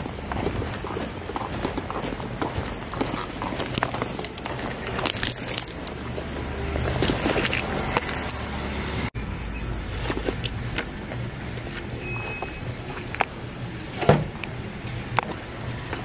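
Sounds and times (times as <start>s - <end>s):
footsteps on paving: 0.0s - 5.4s.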